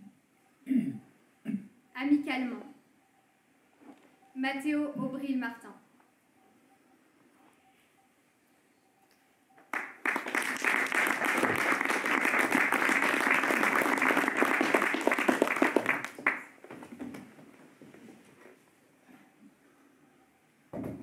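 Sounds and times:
audience applauding: 9.7 - 16.7.

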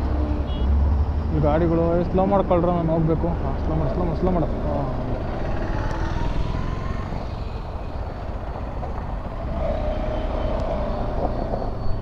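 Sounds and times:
wind and road noise: 0.0 - 12.0
vehicle passing: 3.3 - 11.6.

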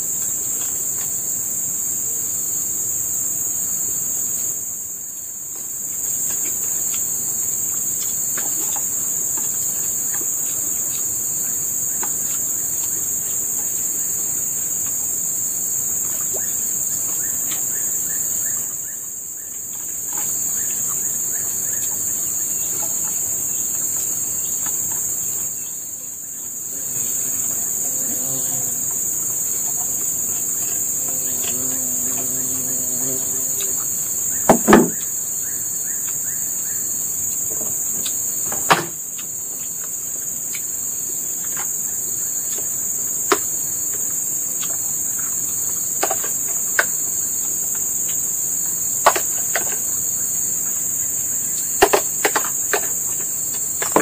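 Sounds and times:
insects droning chorus: 0.0 - 54.0.

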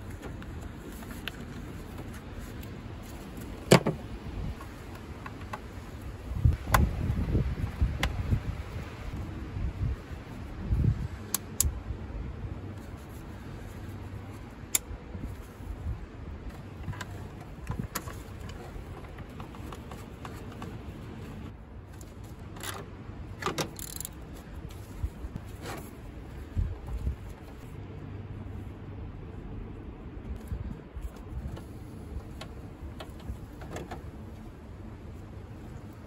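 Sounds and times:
metallic rattle of tools: 22.5 - 24.2.

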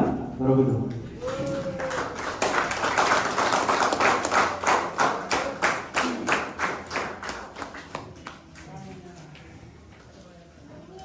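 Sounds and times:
crowd clapping in rhythm: 1.2 - 8.7.

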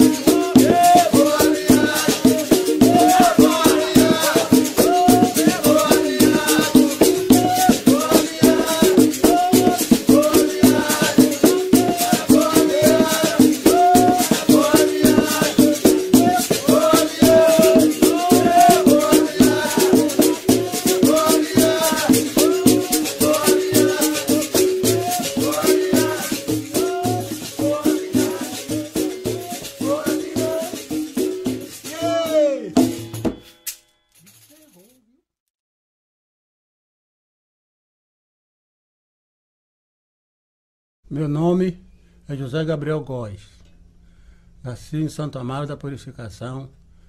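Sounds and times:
basket rattle shaking: 0.0 - 32.3, 34.2 - 34.9
berimbau playing: 0.0 - 33.4.

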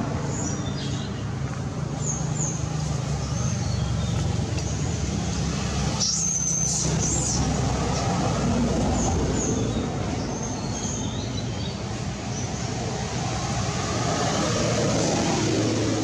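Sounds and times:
engine rumbling: 0.0 - 16.0.

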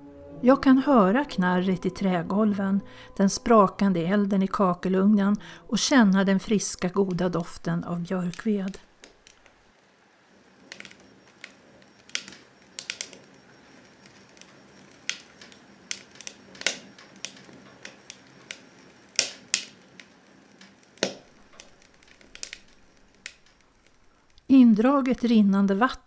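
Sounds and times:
wood fire crackling and popping: 7.0 - 24.5.

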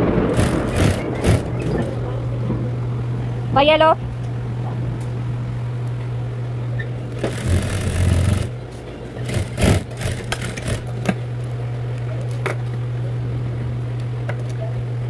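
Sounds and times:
sewing machine humming: 0.0 - 2.0, 7.1 - 11.2
fabric rustling: 0.3 - 1.9.

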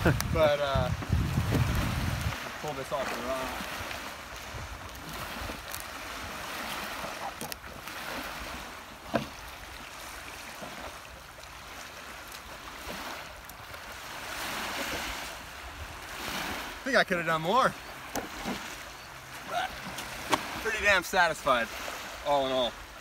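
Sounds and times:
wind on microphone: 0.0 - 10.4
small waves lapping in shallow water: 0.0 - 23.0.

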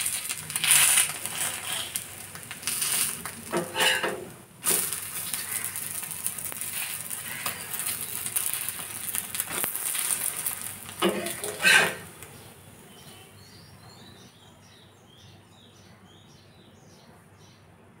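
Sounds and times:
egg sizzling in oil: 0.0 - 12.3
metal spatula scraping: 0.6 - 2.0, 3.5 - 4.3, 11.0 - 12.1.

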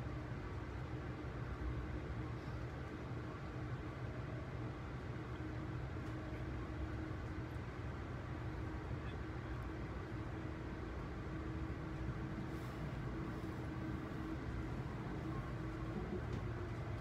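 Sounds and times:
faint constant hum: 0.0 - 17.0
wheels rumbling on rail: 4.4 - 17.0.

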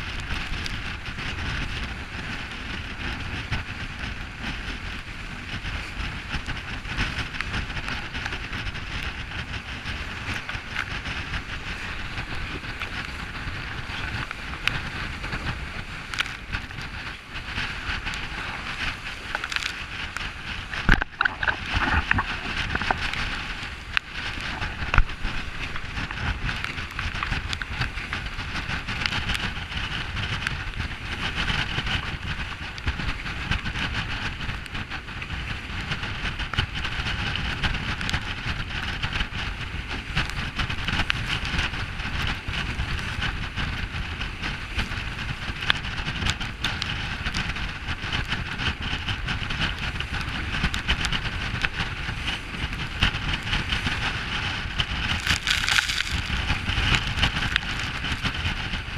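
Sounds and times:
water rushing past hull: 0.1 - 34.5.

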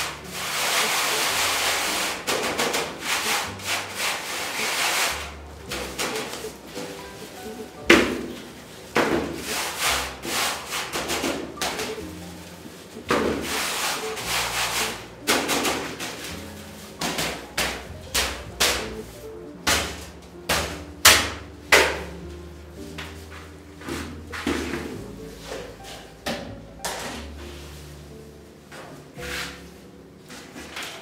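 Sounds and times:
powder rubbed through mesh sieve: 0.0 - 20.2, 29.2 - 30.7.

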